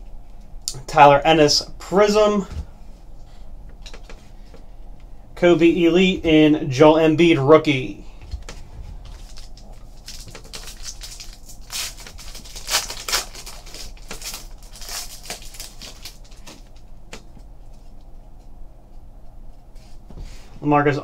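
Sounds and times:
cards rustling: 0:08.3 - 0:17.9
foil wrapper crinkling and tearing: 0:09.0 - 0:16.9.

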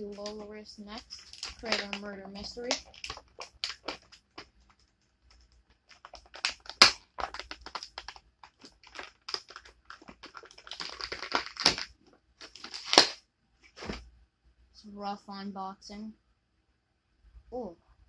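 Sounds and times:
plastic blister pack crackling: 0:00.0 - 0:13.2
sharp plastic crack: 0:00.0 - 0:13.2.

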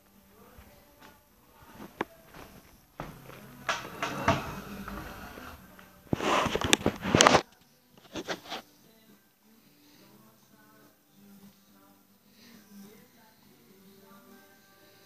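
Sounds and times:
camera handling rustling and scraping: 0:06.1 - 0:07.4.

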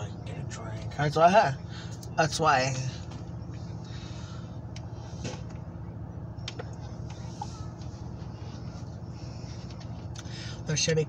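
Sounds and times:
idling locomotive hum: 0:00.0 - 0:11.0.

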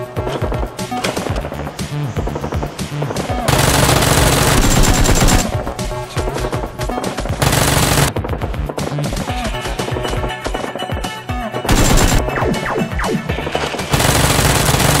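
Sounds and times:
background music: 0:00.0 - 0:15.0
rapid automatic gunfire: 0:03.5 - 0:05.6, 0:07.4 - 0:08.2, 0:11.7 - 0:12.3, 0:13.9 - 0:15.0.

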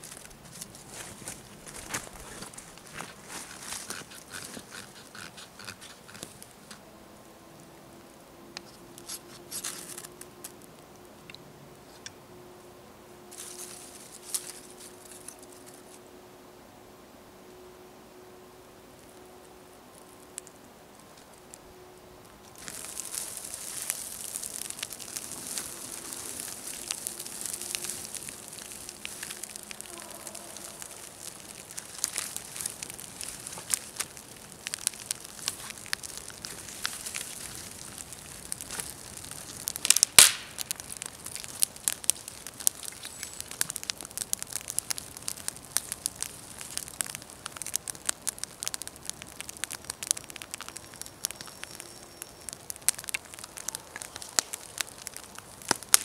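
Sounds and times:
campfire crackling and popping: 0:00.0 - 0:06.8, 0:07.6 - 0:12.2, 0:13.3 - 0:16.1, 0:18.7 - 0:56.0
fire hissing: 0:00.0 - 0:06.8, 0:18.7 - 0:56.0
loud sharp snap: 0:40.0 - 0:40.6.

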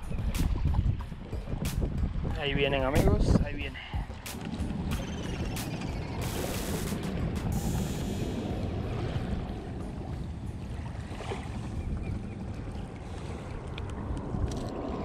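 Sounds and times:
wind rumble on microphone: 0:00.0 - 0:15.0.

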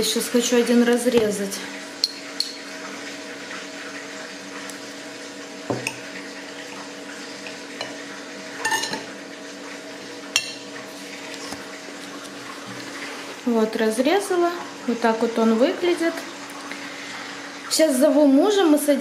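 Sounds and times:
cutlery clinking on plate: 0:08.6 - 0:09.1.

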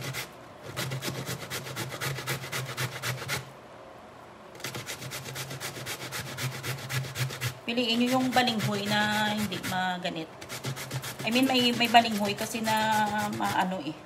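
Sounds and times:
grating root on metal grater: 0:00.0 - 0:03.5, 0:04.6 - 0:13.8.

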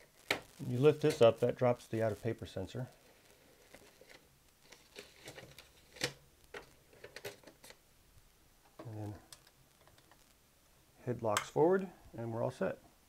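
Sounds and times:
paper rustling: 0:00.0 - 0:01.4, 0:03.1 - 0:07.8.

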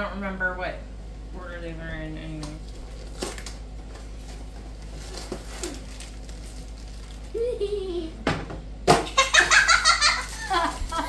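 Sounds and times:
cardboard and plastic rustling: 0:02.4 - 0:07.4, 0:09.8 - 0:11.0.

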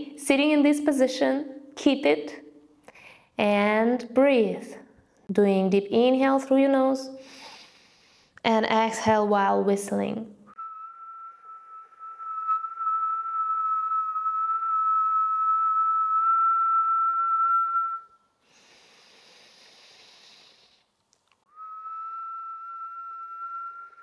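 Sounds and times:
soft inhale through nose: 0:07.2 - 0:08.4, 0:18.4 - 0:20.9
woman whistling steady note: 0:10.6 - 0:18.3, 0:21.5 - 0:24.0.

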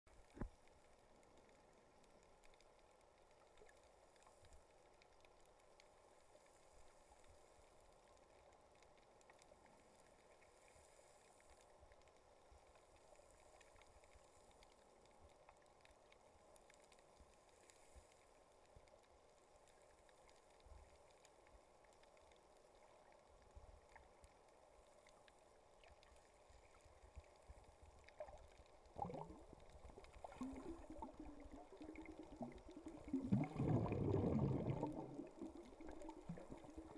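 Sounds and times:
muffled underwater hiss: 0:00.1 - 0:36.9
water gurgling: 0:27.9 - 0:36.9.

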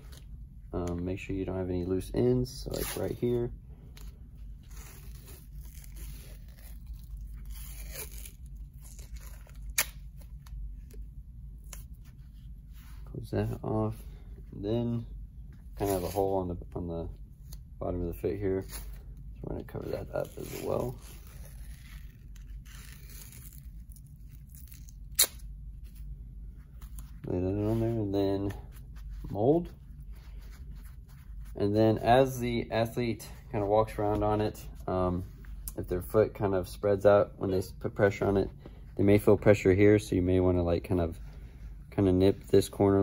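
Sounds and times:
athletic tape tearing: 0:04.6 - 0:11.0, 0:15.8 - 0:16.4, 0:19.7 - 0:25.5.

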